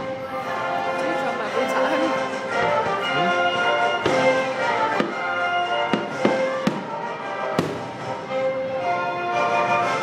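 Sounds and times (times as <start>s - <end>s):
orchestra playing: 0.0s - 10.0s
fireworks banging: 3.9s - 8.3s.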